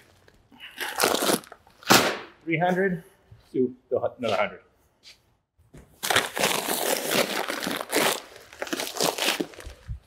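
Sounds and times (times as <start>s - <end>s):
plastic bags crinkling and crunching: 0.0s - 1.6s, 6.0s - 10.0s.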